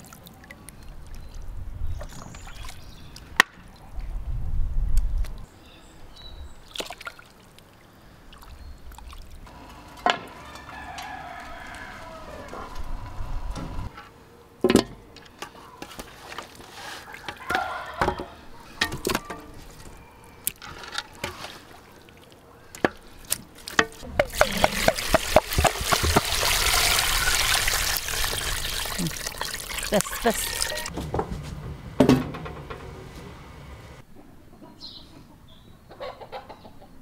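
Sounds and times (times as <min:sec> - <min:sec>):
knocks against metal basins: 0:23.8 - 0:26.5, 0:30.0 - 0:32.9.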